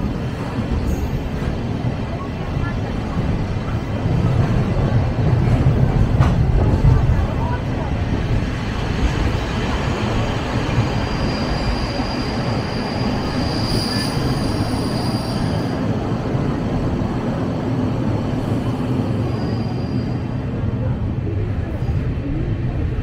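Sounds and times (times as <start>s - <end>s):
train wheels rumbling on rail: 0.0s - 23.0s
high wheel squeal: 10.8s - 15.9s, 19.2s - 20.3s.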